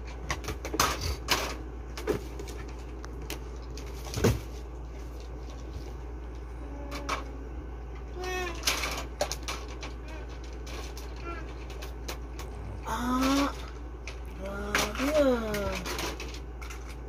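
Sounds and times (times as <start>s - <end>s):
steady low hum: 0.0s - 17.0s
plastic toy knocks and clatters: 8.2s - 12.5s, 13.2s - 17.0s.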